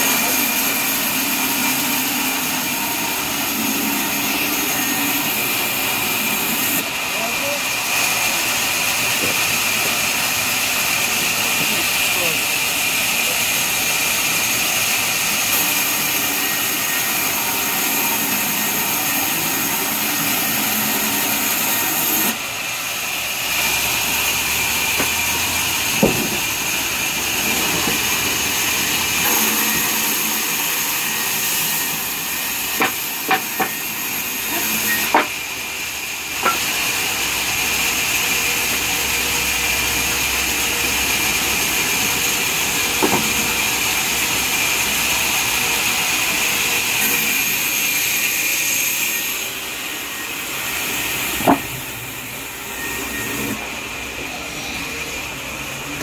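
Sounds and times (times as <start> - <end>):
band saw cutting timber: 0.0 - 56.0
sharp wooden knocks: 26.0 - 26.5, 32.8 - 33.8, 35.1 - 35.4, 43.0 - 43.4, 51.4 - 51.7.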